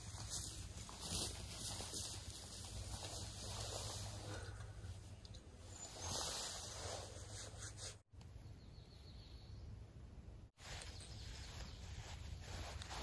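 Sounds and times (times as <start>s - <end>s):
faint rustles: 0.0s - 8.0s.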